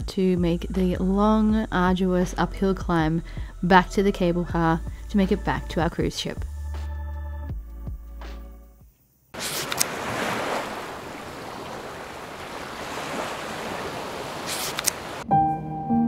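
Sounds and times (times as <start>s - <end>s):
music: 0.0s - 9.0s, 15.2s - 16.0s
ocean waves and surf: 9.4s - 15.3s.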